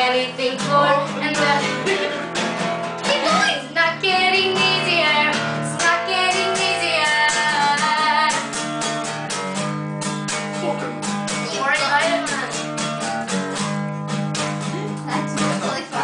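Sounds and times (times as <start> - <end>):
person singing: 0.0 - 2.3, 3.0 - 8.5
acoustic guitar chords: 0.0 - 16.0.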